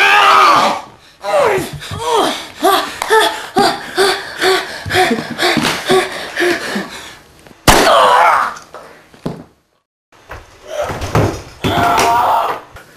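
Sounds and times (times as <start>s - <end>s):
loud cry: 0.0s - 2.9s, 7.7s - 8.6s, 11.6s - 12.7s.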